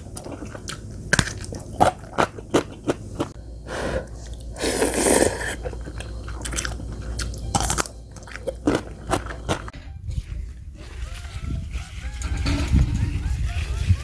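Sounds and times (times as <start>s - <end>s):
crunching and chewing: 0.0s - 3.4s, 4.0s - 9.9s.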